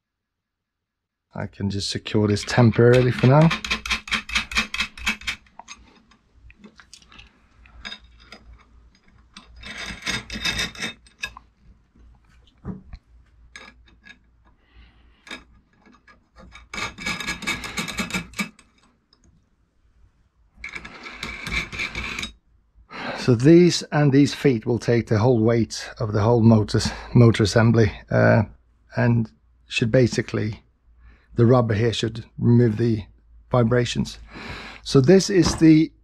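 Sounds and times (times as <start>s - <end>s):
quiet handling noises: 2.0s - 9.8s
metal parts scraping: 2.2s - 6.3s, 7.6s - 11.5s, 13.5s - 14.3s, 15.2s - 18.9s, 20.6s - 22.4s
nuts clicking on threaded studs: 2.4s - 6.6s.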